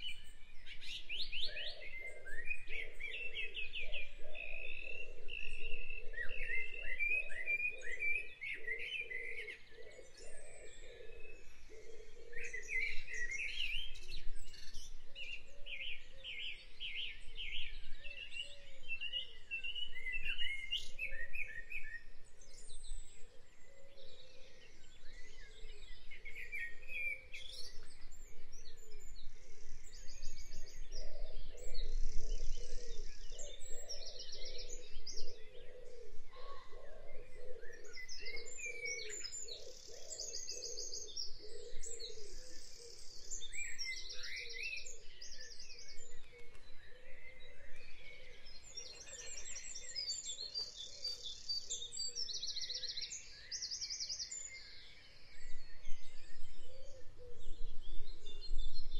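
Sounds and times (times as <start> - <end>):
birds chirping: 29.9 - 57.5.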